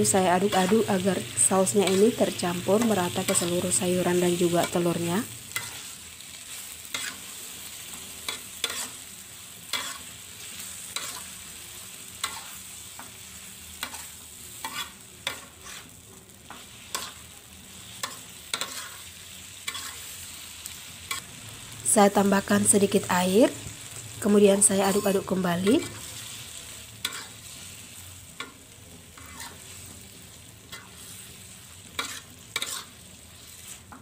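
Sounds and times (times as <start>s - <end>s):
frying sizzle: 0.0s - 34.0s
metal spatula scraping wok: 1.8s - 11.5s, 13.8s - 17.3s, 17.9s - 20.2s, 24.7s - 26.3s, 27.0s - 27.8s, 28.4s - 30.0s, 30.6s - 34.0s.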